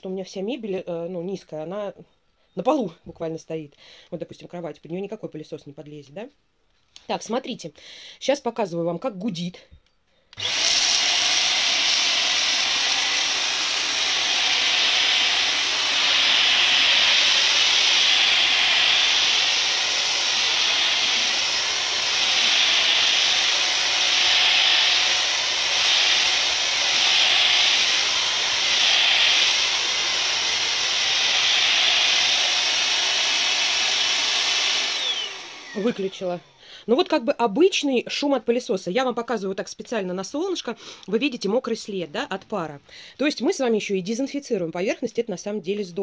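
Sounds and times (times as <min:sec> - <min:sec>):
steam vacuum cleaner running: 0:10.4 - 0:36.6.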